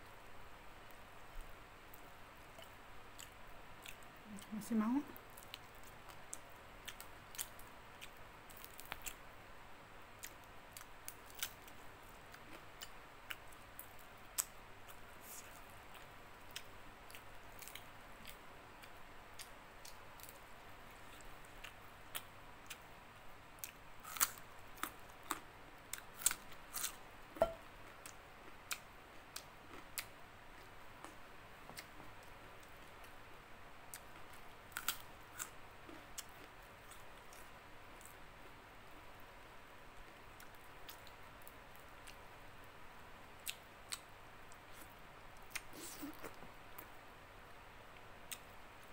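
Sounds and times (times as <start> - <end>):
crunchy chewing: 5.2 - 9.2, 10.2 - 22.8, 23.6 - 27.0, 33.9 - 38.2.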